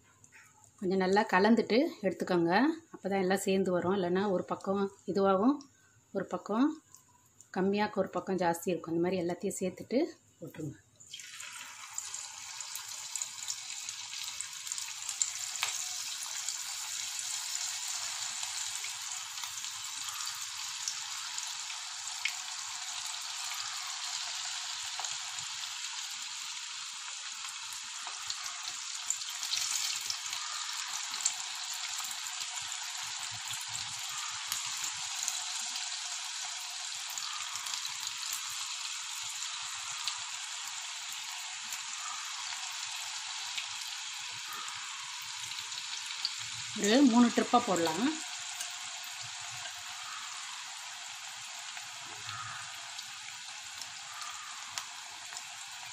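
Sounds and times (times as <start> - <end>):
deep-frying sizzle: 10.6 - 55.9.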